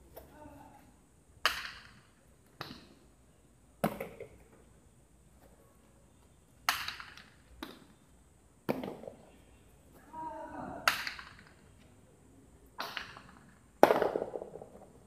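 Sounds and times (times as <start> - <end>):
ball cracking against walls: 1.4 - 3.0, 3.8 - 4.6, 6.6 - 8.0, 8.6 - 9.3, 10.8 - 11.8, 12.8 - 15.0.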